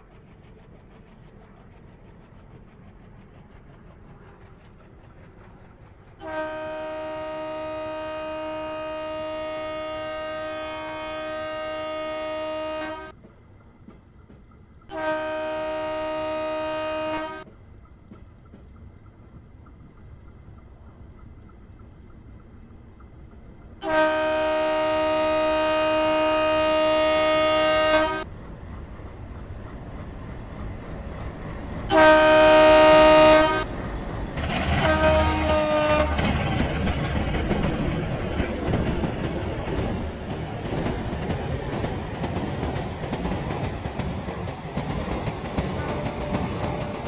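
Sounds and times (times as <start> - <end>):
moving train rumble: 0.0 - 47.0
train horn blasts: 6.2 - 13.2, 14.9 - 17.5, 23.8 - 28.3, 31.9 - 33.7, 34.4 - 36.6, 45.8 - 47.0.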